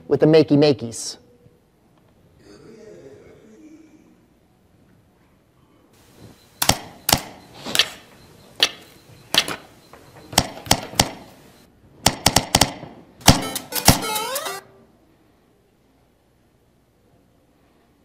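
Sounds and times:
percussive hits over speakers: 0:10.4 - 0:11.3, 0:12.0 - 0:14.1.

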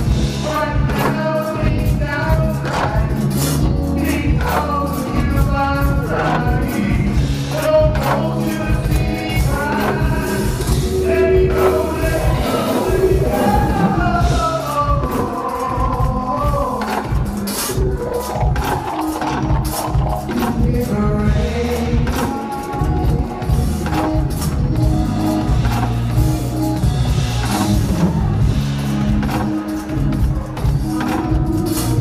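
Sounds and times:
man singing into microphone: 0:00.0 - 0:25.6
soul band playing: 0:00.0 - 0:32.0.

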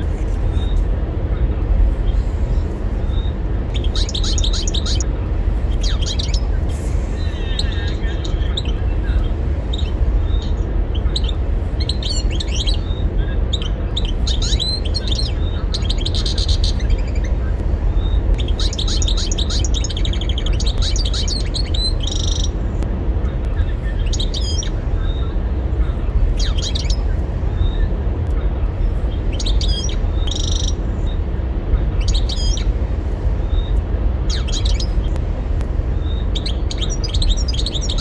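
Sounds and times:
steady low rumble: 0:00.0 - 0:38.0
goldfinch twittering song: 0:03.1 - 0:05.1, 0:05.7 - 0:06.5, 0:07.2 - 0:17.4, 0:18.0 - 0:22.6, 0:24.0 - 0:25.3, 0:26.3 - 0:27.9, 0:29.2 - 0:31.2, 0:32.0 - 0:32.7, 0:33.4 - 0:35.2, 0:36.0 - 0:38.0.

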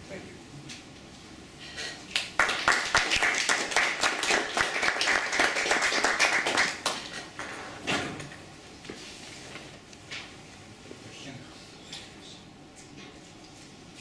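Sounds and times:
people applauding: 0:02.1 - 0:07.1.

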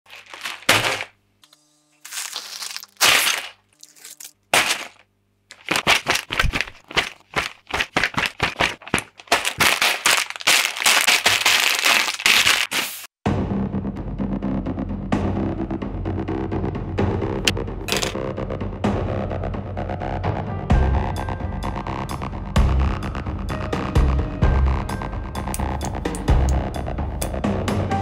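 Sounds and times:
paper pages rustling: 0:00.1 - 0:01.2, 0:02.0 - 0:13.2, 0:17.9 - 0:18.2
plastic bags crinkling: 0:00.1 - 0:01.2, 0:02.1 - 0:13.1.

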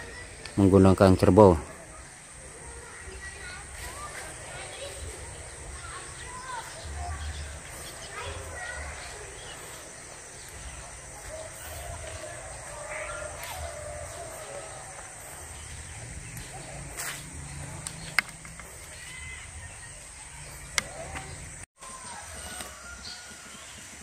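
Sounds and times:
bird calls: 0:00.0 - 0:24.0
sharp clicks: 0:17.8 - 0:19.0.

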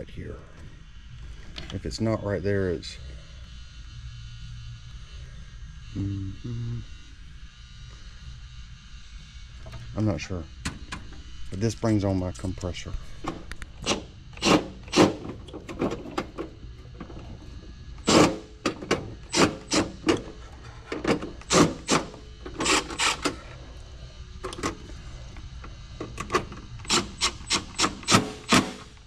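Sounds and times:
faint steady hum: 0:00.0 - 0:29.0.

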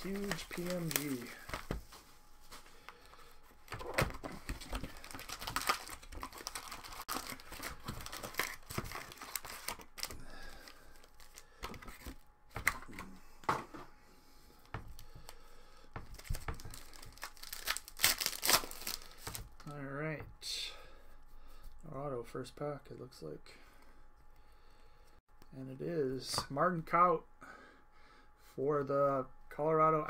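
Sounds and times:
foil packs crinkling and tearing: 0:00.0 - 0:01.8, 0:03.0 - 0:12.2, 0:16.0 - 0:19.6.

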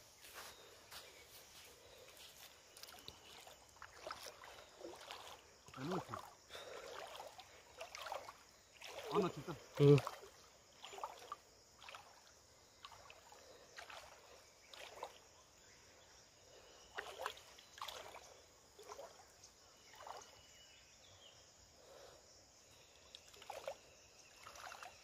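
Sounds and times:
water splashing and dripping: 0:02.8 - 0:15.3, 0:16.9 - 0:19.3, 0:23.1 - 0:25.0.

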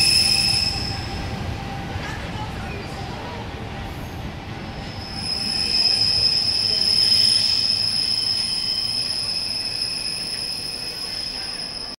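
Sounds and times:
train wheels squealing: 0:00.0 - 0:01.3, 0:04.8 - 0:11.9
moving train cars: 0:00.0 - 0:11.9.

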